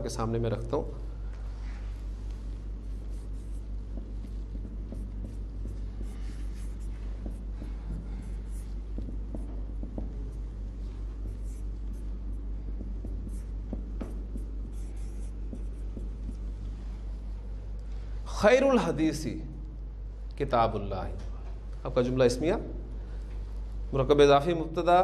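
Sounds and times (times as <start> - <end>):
steady low hum: 0.0 - 25.0
marker writing on whiteboard: 1.9 - 17.2.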